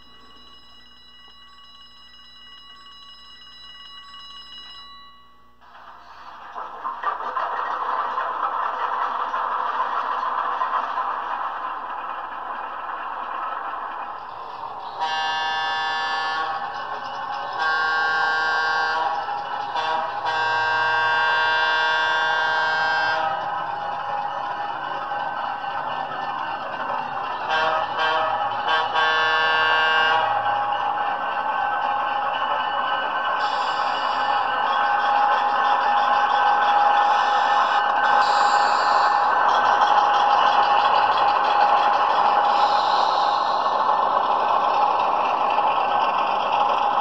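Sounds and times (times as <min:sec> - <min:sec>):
locomotive bell ringing: 0:00.0 - 0:06.8, 0:08.5 - 0:47.0
diesel engine sound starting: 0:05.7 - 0:47.0
model train air horn: 0:15.0 - 0:16.8, 0:17.5 - 0:23.4, 0:27.4 - 0:30.5, 0:33.4 - 0:34.4, 0:36.7 - 0:39.4, 0:42.4 - 0:43.8.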